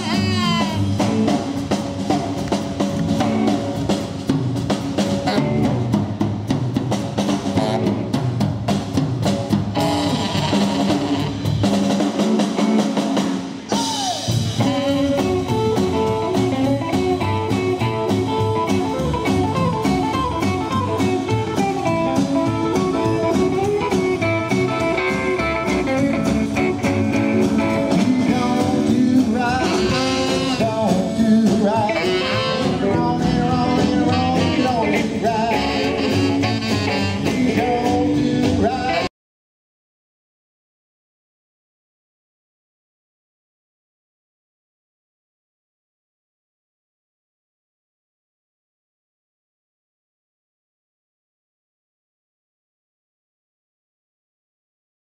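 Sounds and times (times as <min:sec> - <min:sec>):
band song with guitar and singing: 0:00.0 - 0:39.1.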